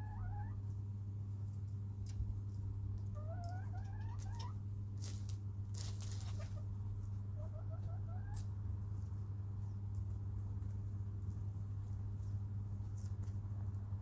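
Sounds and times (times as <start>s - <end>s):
chickens chirping trills: 0.0s - 0.8s, 3.0s - 13.4s
steady low hum: 0.0s - 14.0s
pecking rustles in wood chips: 4.0s - 6.7s, 8.9s - 13.8s.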